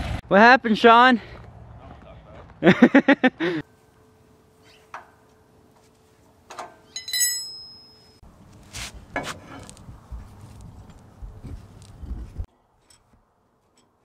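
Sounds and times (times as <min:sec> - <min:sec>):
metal tools clinking: 0:06.5 - 0:08.2
ringing metallic clank: 0:06.5 - 0:08.2.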